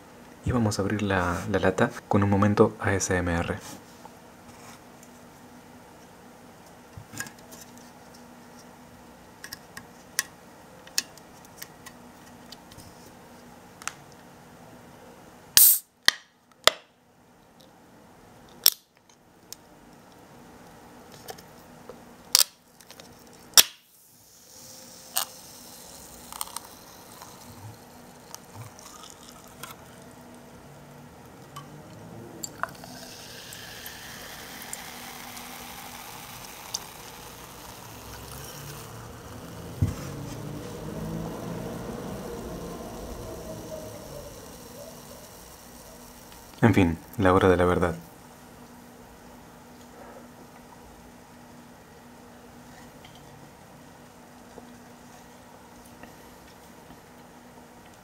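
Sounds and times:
can popping open: 15.6s - 16.8s, 18.6s - 18.9s, 23.6s - 23.9s
carbonation fizzing: 24.0s - 29.9s, 32.6s - 39.0s
cola pouring into a glass: 25.0s - 30.1s, 32.5s - 38.9s.

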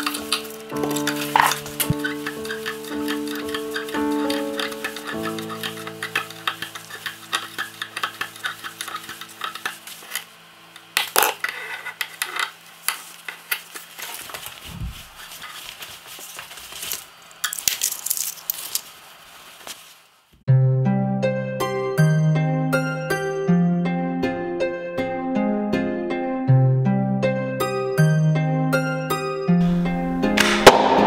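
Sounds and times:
soft background music: 0.0s - 10.2s, 20.5s - 31.0s
thread clicking and rustling: 12.1s - 20.0s.

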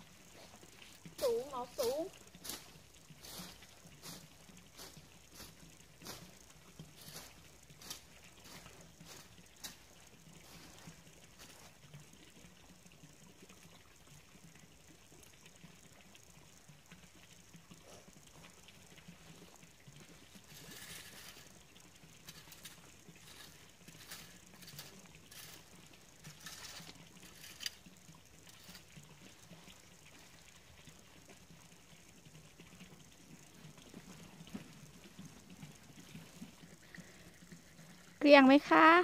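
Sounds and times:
rake scraping through leaves: 1.2s - 6.4s, 7.0s - 9.8s, 20.3s - 21.6s, 22.2s - 27.9s.

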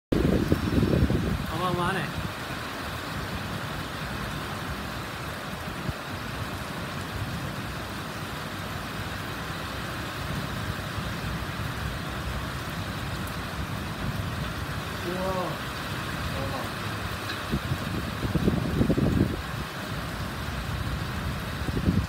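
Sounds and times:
distant road traffic: 2.3s - 18.4s.

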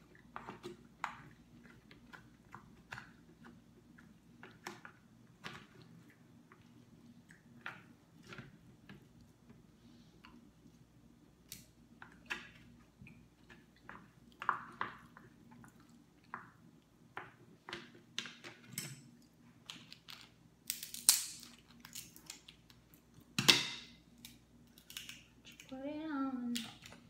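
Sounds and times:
crab shell cracking: 20.0s - 22.8s, 24.2s - 25.7s.

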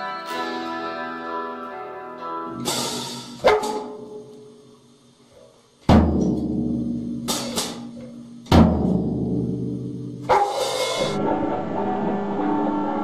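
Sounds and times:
cymbal crashes: 2.5s - 4.7s, 6.3s - 13.0s.

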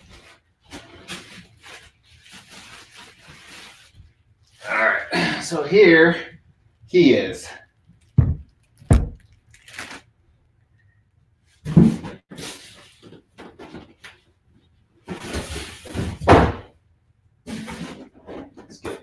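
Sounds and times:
loud thumps: 8.2s - 9.2s.

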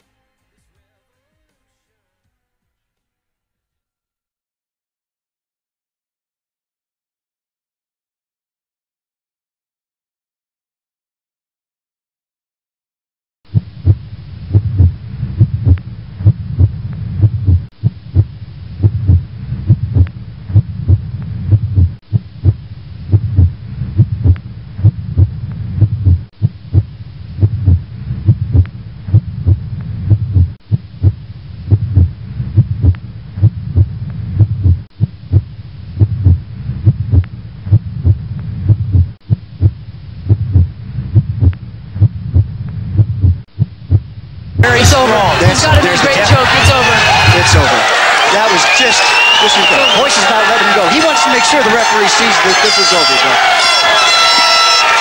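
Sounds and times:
heartbeat thuds: 13.5s - 44.7s
low hum: 13.5s - 44.9s.

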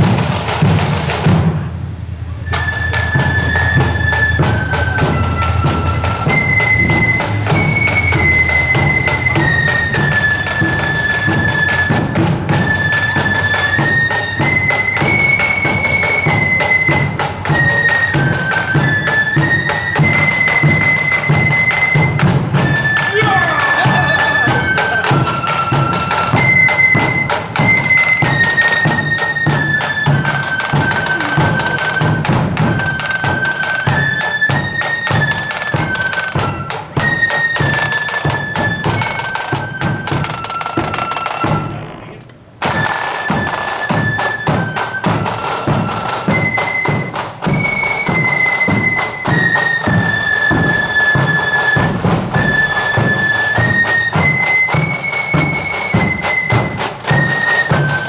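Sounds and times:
side drum rolls: 0.0s - 58.0s
flutes playing in unison: 2.2s - 58.0s
bass drum beat: 30.7s - 32.8s.

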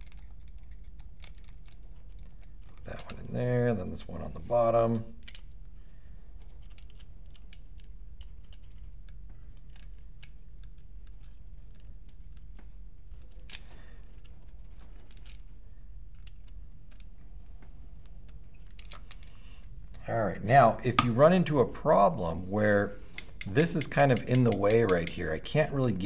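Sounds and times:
allen key clicking on metal: 23.1s - 25.3s.

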